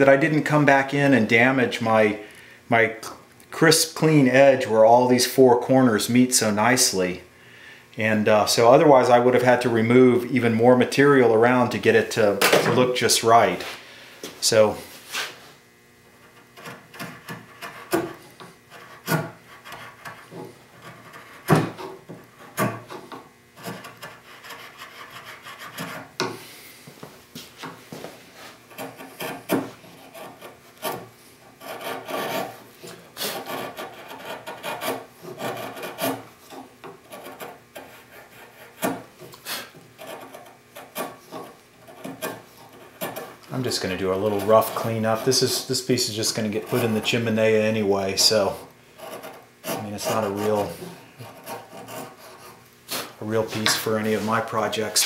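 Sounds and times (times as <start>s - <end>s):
chisel scraping wood: 16.2s - 26.4s, 28.0s - 55.0s.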